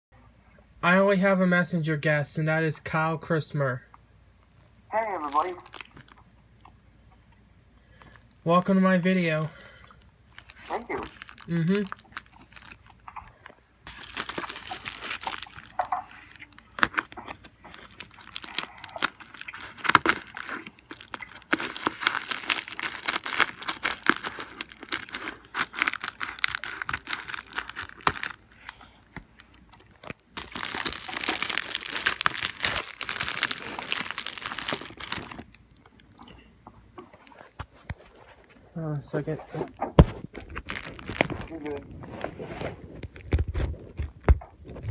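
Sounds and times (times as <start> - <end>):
plastic crinkling and tearing: 5.2 - 6.2, 10.3 - 36.0, 39.7 - 44.9
scissors cutting plastic: 14.2 - 28.8.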